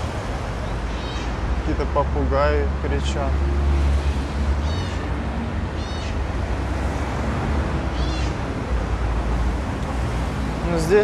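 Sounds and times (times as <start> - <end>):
parrots screeching: 0.8 - 1.4, 4.0 - 5.1, 5.7 - 6.3, 7.9 - 8.5.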